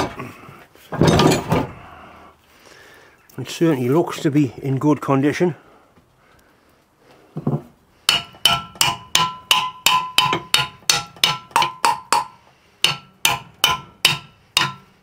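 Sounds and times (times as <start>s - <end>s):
hammer tapping metal boiler: 8.1s - 14.9s.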